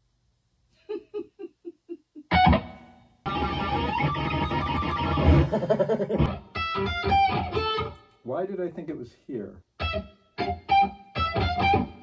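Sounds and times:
electric guitar playing: 2.3 - 5.6, 6.2 - 8.1, 9.8 - 12.0.

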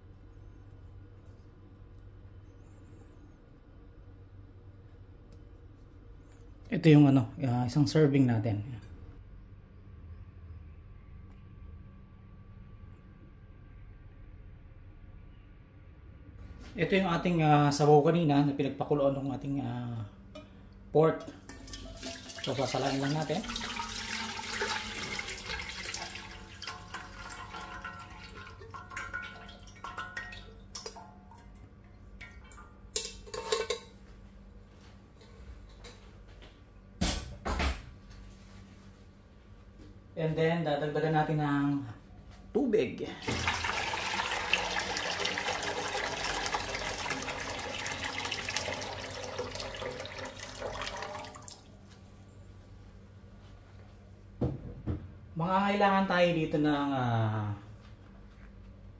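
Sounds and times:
broth pouring through strainer: 21.5 - 30.5, 43.2 - 51.6.

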